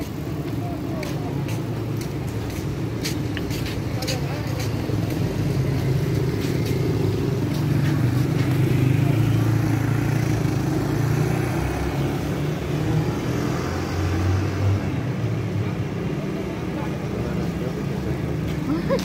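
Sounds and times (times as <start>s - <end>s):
vehicle engines running: 0.0s - 19.0s
motorcycles riding past: 4.2s - 19.0s.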